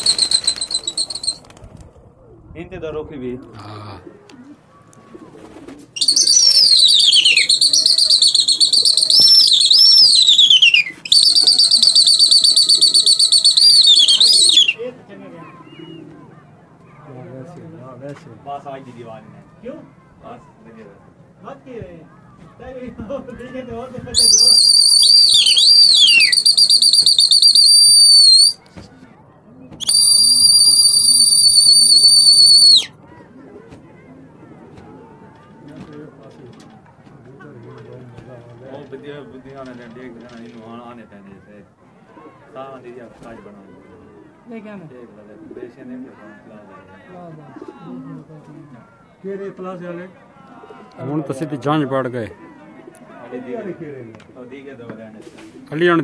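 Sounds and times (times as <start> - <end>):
person whistling in a trill: 6.0 - 14.7, 24.2 - 28.6, 29.8 - 32.9.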